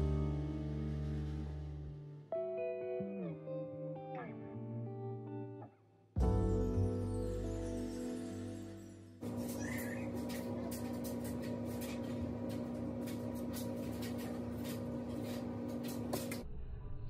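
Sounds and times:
steady hum: 9.2 - 16.4.

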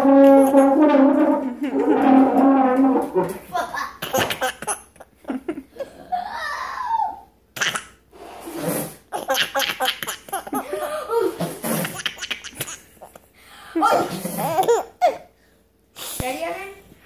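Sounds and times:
toddler laughing: 3.5 - 8.0, 9.1 - 13.2, 13.8 - 15.2.

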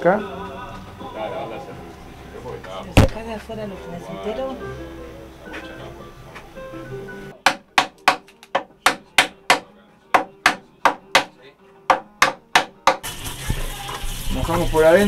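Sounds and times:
faint background music: 0.0 - 15.0
hammer knocking on wooden staves: 7.4 - 11.3, 11.9 - 13.1.

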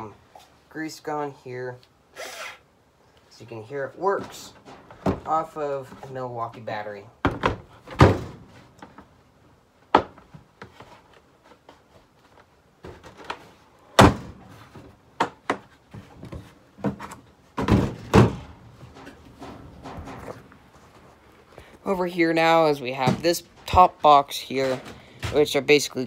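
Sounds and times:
knocks of hard objects set down: 14.0 - 20.4.

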